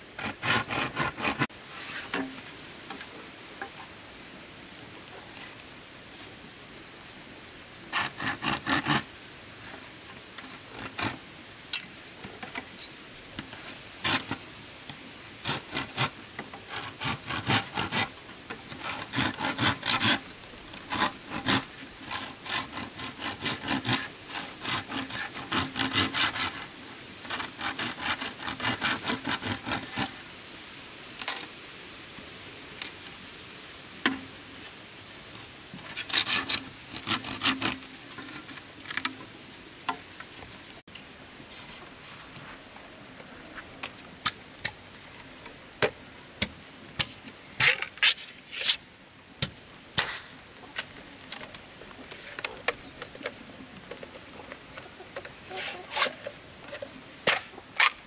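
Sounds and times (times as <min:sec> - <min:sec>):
hand saw cutting wood: 0:00.2 - 0:02.3, 0:07.9 - 0:09.1, 0:10.8 - 0:11.2, 0:14.0 - 0:14.4, 0:15.4 - 0:30.1, 0:35.9 - 0:38.5, 0:55.5 - 0:56.3.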